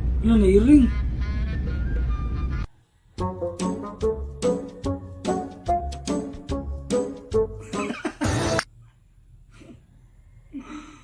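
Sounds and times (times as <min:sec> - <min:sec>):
music with steady beat: 0:03.2 - 0:08.6.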